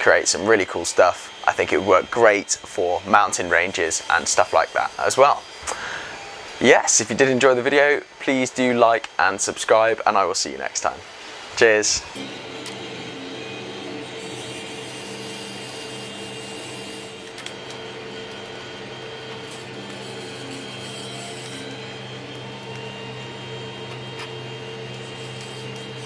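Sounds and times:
three d printer motors humming: 0:00.0 - 0:10.3, 0:11.0 - 0:26.0.

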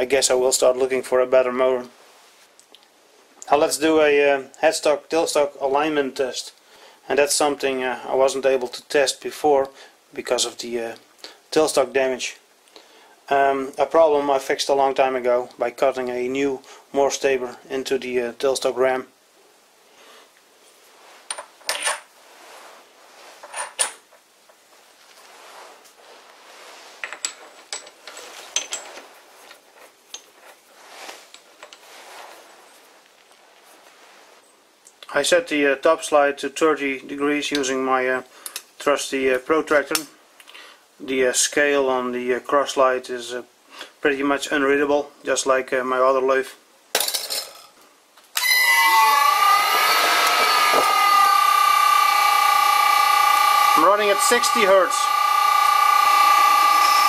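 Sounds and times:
lathe motor high-pitched whine: 0:48.4 - 0:57.0.

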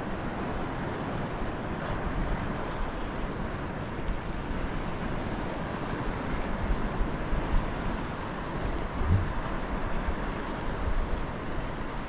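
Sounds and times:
wind rushing on microphone: 0:00.0 - 0:12.0
sea water moving past kayak: 0:04.4 - 0:12.0.

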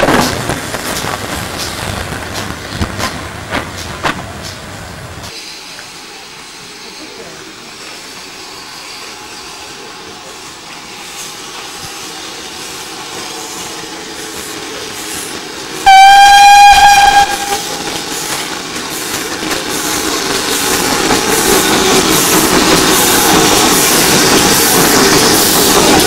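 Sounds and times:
rail noise of approaching train: 0:00.0 - 0:26.0
steam locomotive whistle blast: 0:15.8 - 0:18.1.

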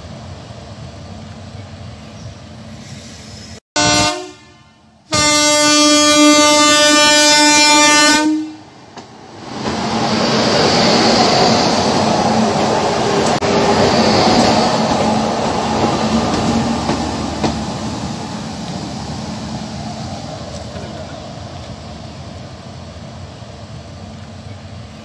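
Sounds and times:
train running noise: 0:00.0 - 0:25.0
locomotive horn blasts: 0:03.8 - 0:08.6.

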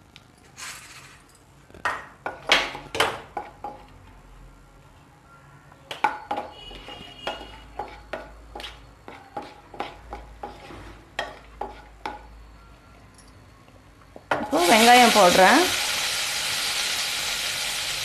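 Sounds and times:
faint oil sizzle: 0:14.4 - 0:18.0.

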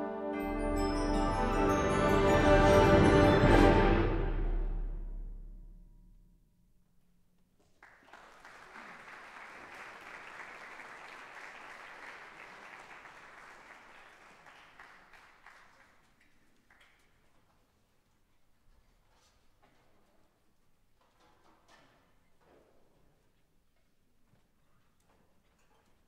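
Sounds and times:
audience applauding: 0:07.8 - 0:16.9.

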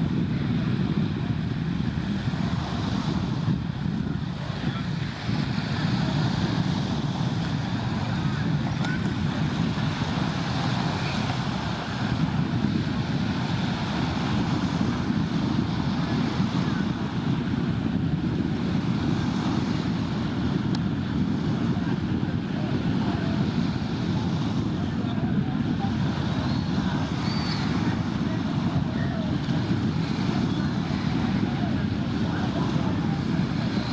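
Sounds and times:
small waves washing onto shore: 0:00.0 - 0:33.9
wind on microphone: 0:00.0 - 0:33.9.

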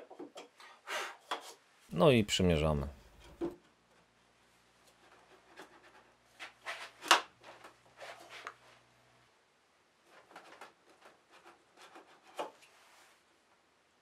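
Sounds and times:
wood-on-wood scrapes and knocks: 0:00.0 - 0:01.6, 0:04.9 - 0:08.6, 0:10.1 - 0:12.9.

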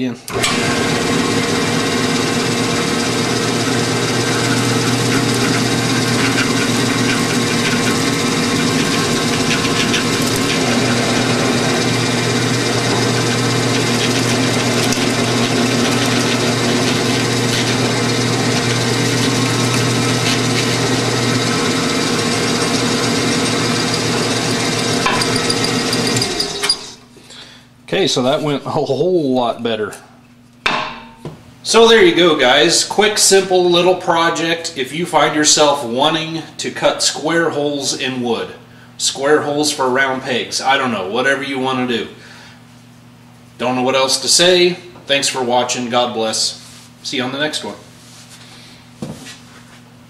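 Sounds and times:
drill press motor running: 0:00.3 - 0:27.1.

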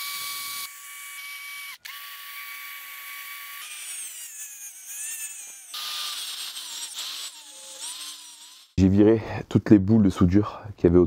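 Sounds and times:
rotary tool wire brush whining: 0:00.0 - 0:08.8.

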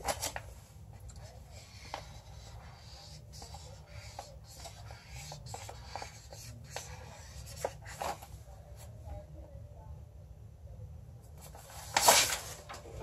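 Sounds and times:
marker scratching on paper: 0:01.0 - 0:08.3.

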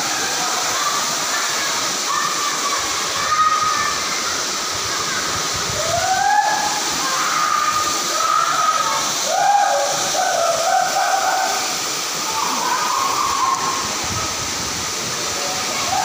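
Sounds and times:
waterfall rushing: 0:00.0 - 0:16.0
drawn-out voice-like calls: 0:06.0 - 0:14.3.

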